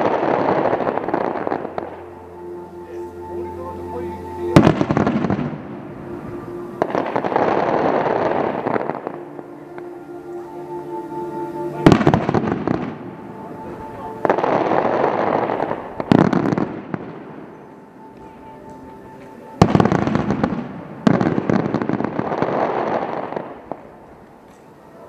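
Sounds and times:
fireworks bangs: 0:00.0 - 0:02.1, 0:03.6 - 0:09.9, 0:13.7 - 0:24.4
fireworks crackling: 0:00.0 - 0:25.0.

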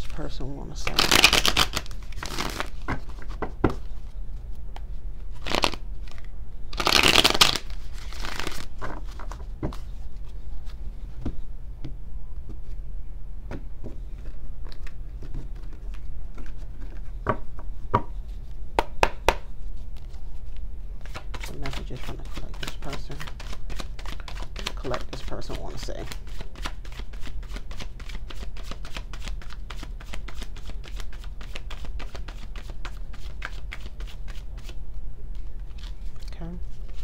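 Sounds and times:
cards being shuffled: 0:00.8 - 0:04.2, 0:05.3 - 0:10.8, 0:14.2 - 0:17.1, 0:21.0 - 0:37.0.

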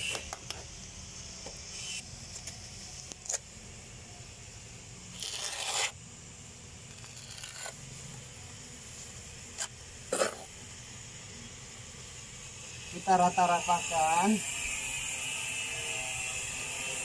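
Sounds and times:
trowel scraping wet mortar: 0:05.1 - 0:06.0, 0:06.9 - 0:07.8, 0:09.5 - 0:10.5.

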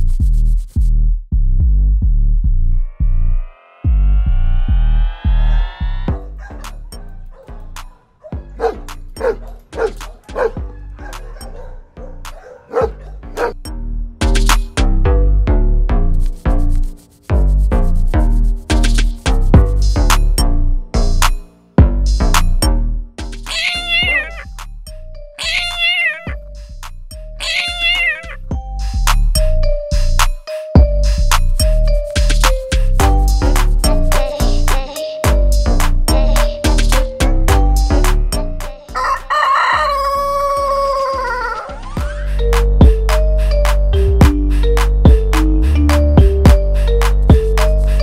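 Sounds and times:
dog barking: 0:06.4 - 0:13.6
background music with beat: 0:07.7 - 0:11.6, 0:13.6 - 0:15.2, 0:15.9 - 0:25.0, 0:28.4 - 0:39.0, 0:40.5 - 0:48.0
kitten meowing: 0:23.5 - 0:24.5, 0:25.4 - 0:26.4, 0:27.4 - 0:28.4.

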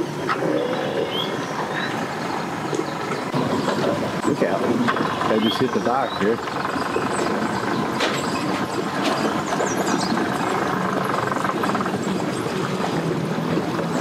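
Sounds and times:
outboard motor idling: 0:00.0 - 0:14.0.

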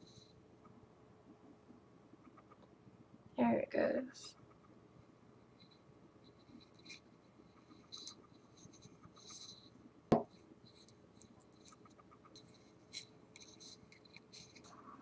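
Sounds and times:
hands rubbing wooden stick: 0:06.4 - 0:09.7, 0:10.7 - 0:14.8.

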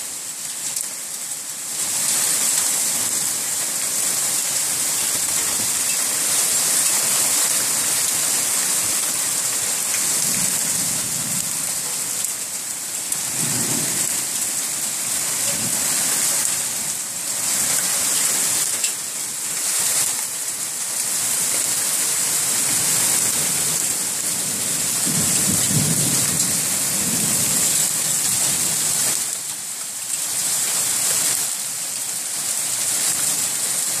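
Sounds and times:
heavy rain pouring: 0:00.0 - 0:34.0
low thunder rumbles: 0:13.2 - 0:14.3, 0:24.4 - 0:27.7.

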